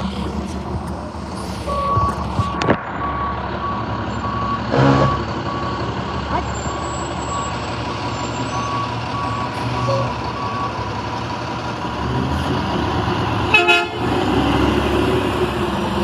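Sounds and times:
truck diesel engine running: 0.0 - 16.0
reversing alarm beeping: 1.7 - 10.8
truck horn honk: 4.6 - 5.3, 13.5 - 14.1.

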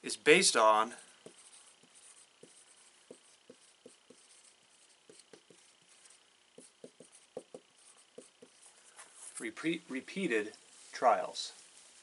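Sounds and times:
marker writing on whiteboard: 1.2 - 8.8.

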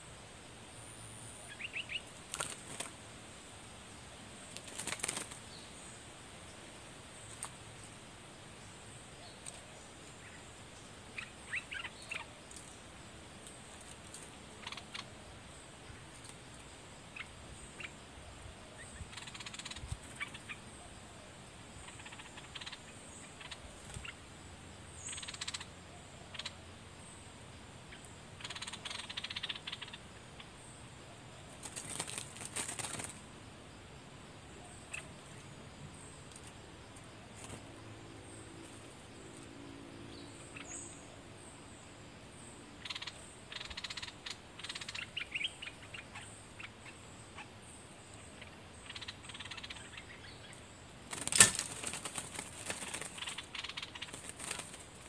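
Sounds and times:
harsh rattling bird chatter: 1.4 - 3.1, 4.4 - 6.0, 7.2 - 18.1, 18.7 - 27.2, 27.9 - 33.4, 40.1 - 41.5, 42.4 - 55.0
wingbeats flurry: 1.5 - 3.0, 4.4 - 5.5, 31.5 - 33.4, 37.2 - 39.0, 51.0 - 55.0.

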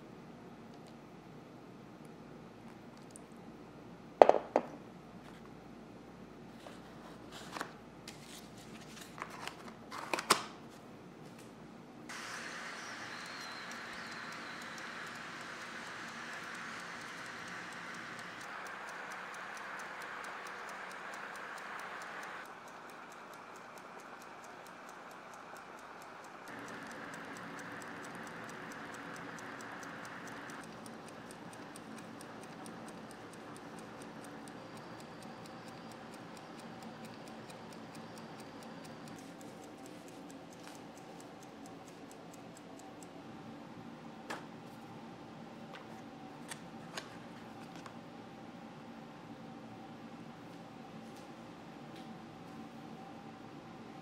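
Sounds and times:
steady hiss: 12.1 - 42.0
kitchen timer ticking: 12.1 - 43.2.

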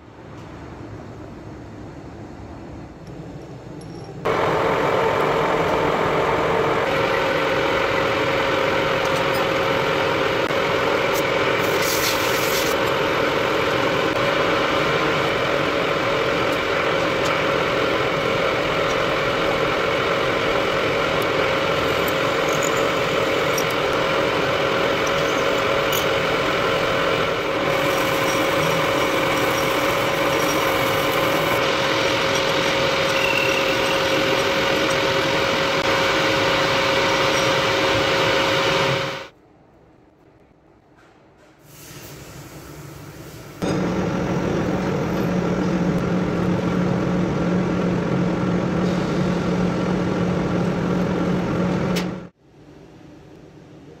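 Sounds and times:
metal lathe humming: 4.3 - 39.3.

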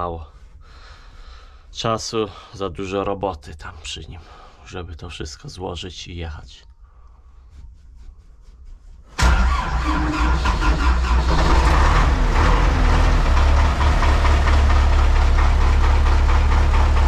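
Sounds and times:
tractor diesel engine running: 9.2 - 17.0.

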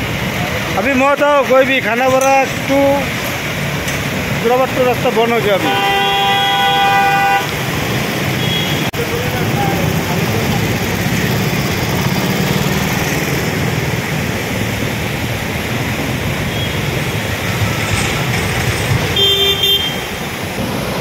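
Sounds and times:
splashing churning water: 0.0 - 21.0
vehicle engines running: 0.0 - 21.0
car horn honk: 5.6 - 7.6, 19.2 - 20.2.

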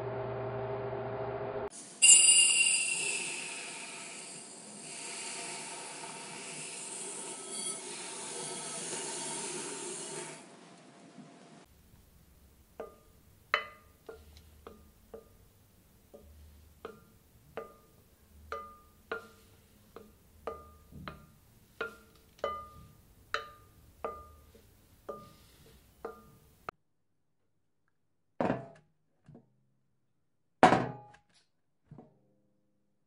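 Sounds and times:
utensil knocking against bowl: 12.8 - 15.5, 16.1 - 25.4.

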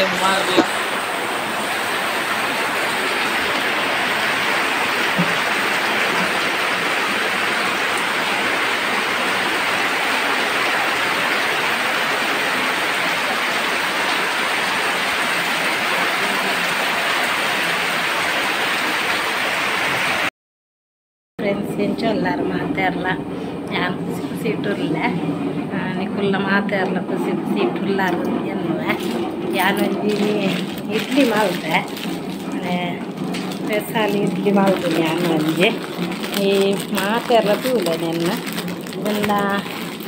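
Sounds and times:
heavy rain falling: 0.0 - 20.3.

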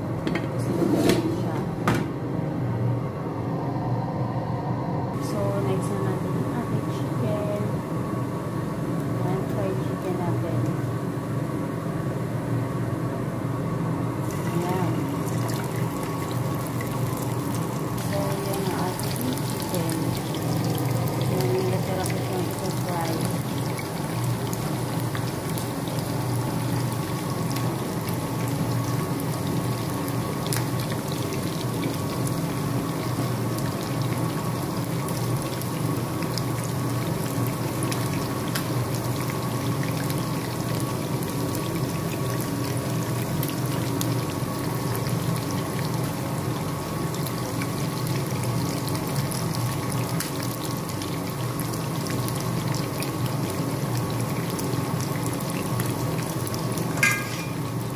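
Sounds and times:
wings sizzling in hot oil: 14.1 - 57.9.

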